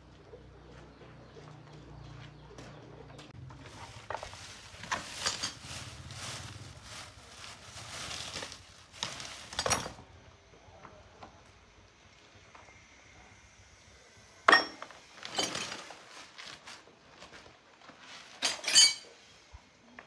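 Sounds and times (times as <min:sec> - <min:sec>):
hand tools clinking on metal: 0:04.8 - 0:05.8, 0:14.5 - 0:16.0, 0:18.4 - 0:19.2.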